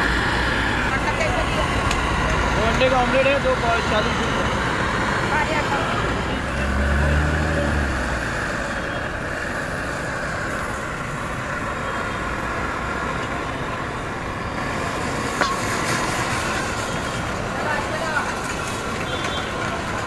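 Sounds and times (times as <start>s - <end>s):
gas burner roaring: 0.0s - 20.0s
street traffic noise: 0.0s - 20.0s
spatula striking metal pan: 15.4s - 16.0s.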